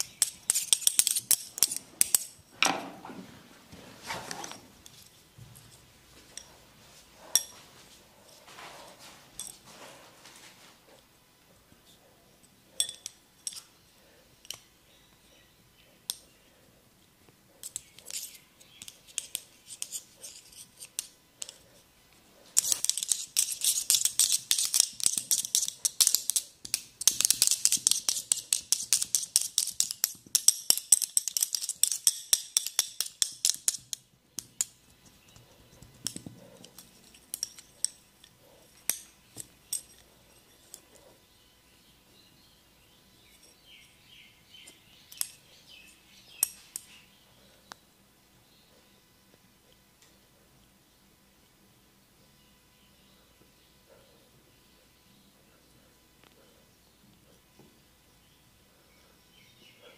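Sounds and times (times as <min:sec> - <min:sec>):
sharp clicks during massage: 0:22.6 - 0:34.8.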